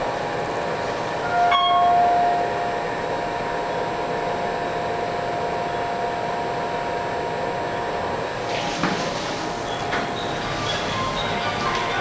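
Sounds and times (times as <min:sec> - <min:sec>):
elevator hum: 0:00.0 - 0:12.0
elevator electronic ding: 0:01.2 - 0:02.8.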